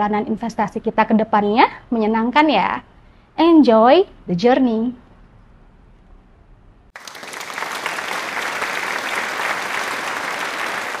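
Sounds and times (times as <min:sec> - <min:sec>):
crowd applauding: 0:07.0 - 0:11.0.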